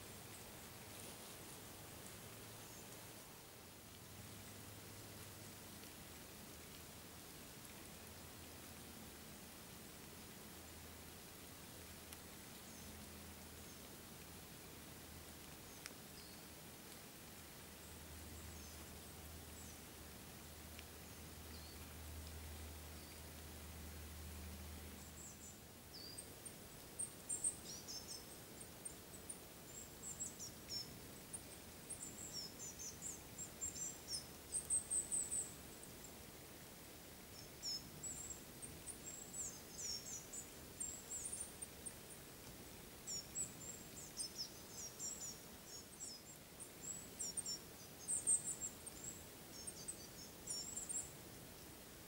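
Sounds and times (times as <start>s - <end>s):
faint background hiss: 0.0s - 52.0s
songbirds chirping: 0.0s - 52.0s.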